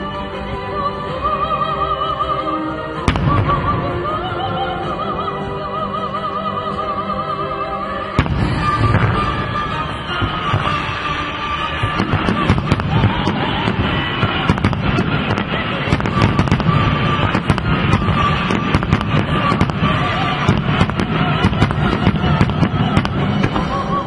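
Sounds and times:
music: 0:00.0 - 0:24.0
fireworks bangs and crackles: 0:03.0 - 0:04.0, 0:08.2 - 0:24.0.

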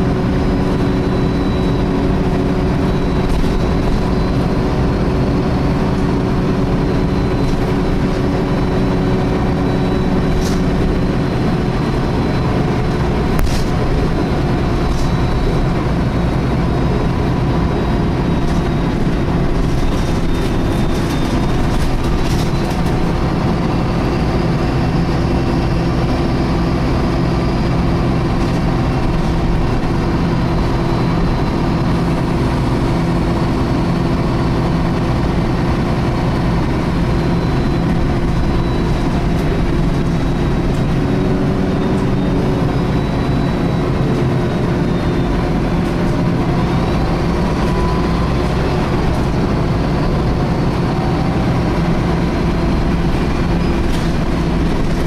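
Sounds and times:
bus engine drone: 0:00.0 - 0:55.0
engine cooling fan whine: 0:00.0 - 0:55.0.

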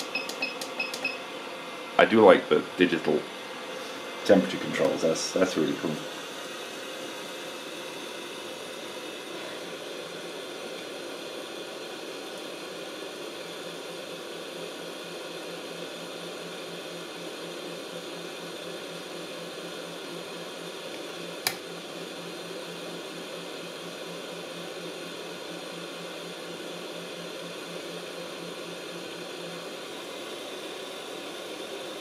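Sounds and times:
sharp click: 0:00.0 - 0:01.1
hot air gun fan whirring: 0:00.0 - 0:32.0.

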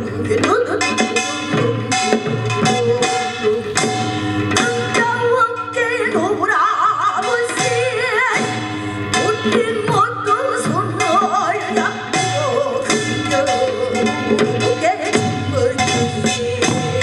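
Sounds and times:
woman singing with vibrato: 0:00.0 - 0:17.0
drum strikes: 0:00.2 - 0:17.0.

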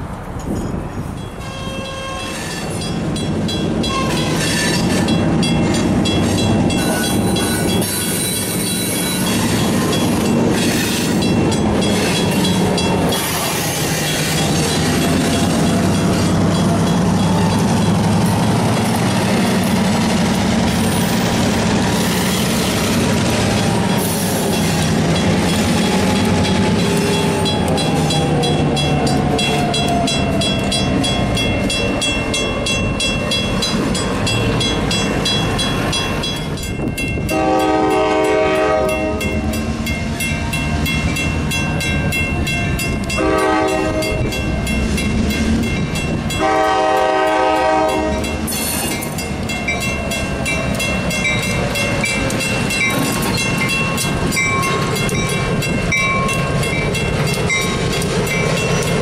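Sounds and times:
locomotive engines running: 0:00.0 - 0:59.0
train wheels rumbling: 0:00.0 - 0:59.0
crossing bell ringing: 0:00.4 - 0:59.0
locomotive horn blasts: 0:01.4 - 0:02.8, 0:37.2 - 0:39.4, 0:43.1 - 0:44.4, 0:46.3 - 0:48.4.

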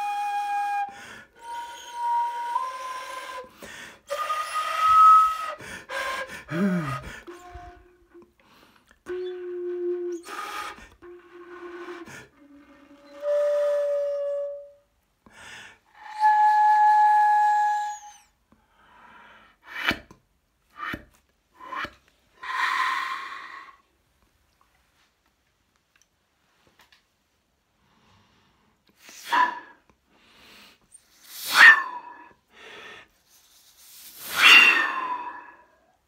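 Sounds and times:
breathy flute notes: 0:00.0 - 0:18.9, 0:21.6 - 0:23.8, 0:34.3 - 0:36.0.

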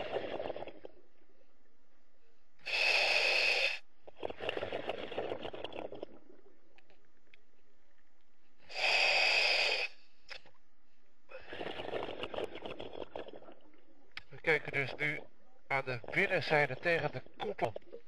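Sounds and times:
bubbling exhalation: 0:00.0 - 0:01.0, 0:02.7 - 0:06.6, 0:11.3 - 0:13.9
hissing regulator inhalations: 0:02.6 - 0:05.4, 0:08.7 - 0:10.2.

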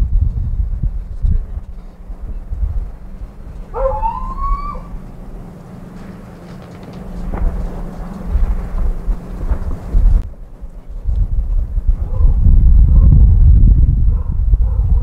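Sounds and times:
gusty low rumbling: 0:00.0 - 0:15.0
drawn-out animal cry: 0:03.6 - 0:08.2.

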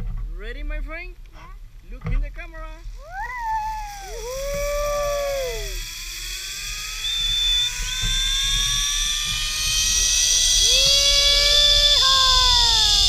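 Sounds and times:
rushing wind hiss: 0:02.6 - 0:13.0
steady tone: 0:02.7 - 0:13.0
zipline pulleys whining on cable: 0:02.7 - 0:13.0.

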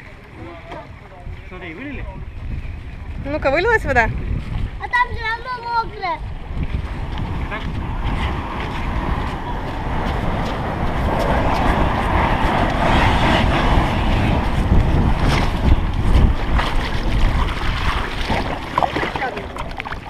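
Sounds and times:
wind buffeting microphone: 0:00.0 - 0:20.0
plastic kayak scraping over sand: 0:06.6 - 0:19.8.

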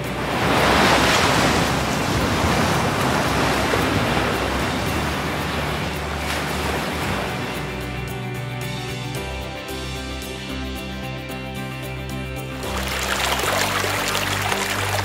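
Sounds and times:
ocean waves breaking: 0:00.0 - 0:09.2, 0:12.5 - 0:15.0.

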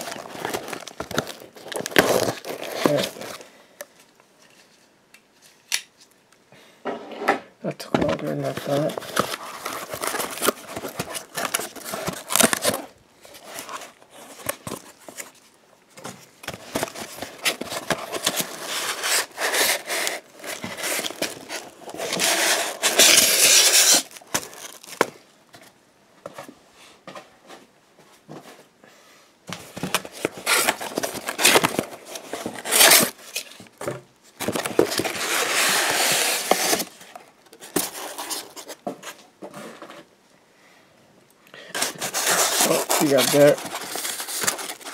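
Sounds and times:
packing tape ripping: 0:00.0 - 0:03.4, 0:08.7 - 0:12.8, 0:16.6 - 0:25.1, 0:30.1 - 0:33.5, 0:41.8 - 0:44.9
cardboard and foam rustling: 0:00.0 - 0:03.5, 0:07.9 - 0:28.7, 0:29.5 - 0:40.1, 0:41.7 - 0:44.9.

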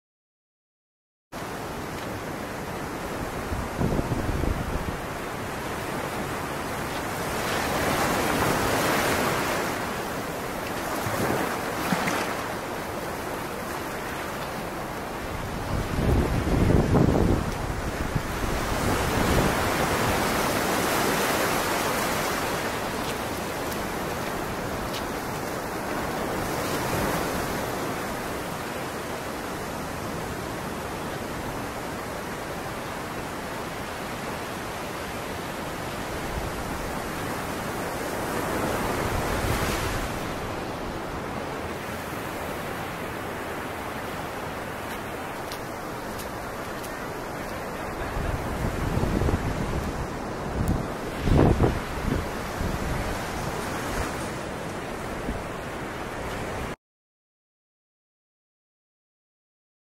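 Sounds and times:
ocean surf washing ashore: 0:01.4 - 0:56.8
wind on microphone: 0:03.2 - 0:05.2, 0:15.2 - 0:23.0, 0:46.3 - 0:55.6.

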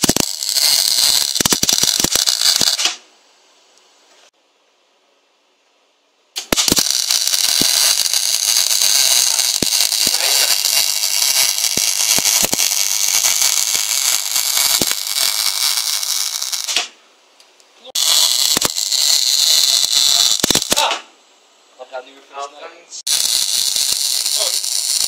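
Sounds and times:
welding arc crackling: 0:00.0 - 0:03.0, 0:06.4 - 0:17.0, 0:17.9 - 0:21.1, 0:23.0 - 0:25.0.

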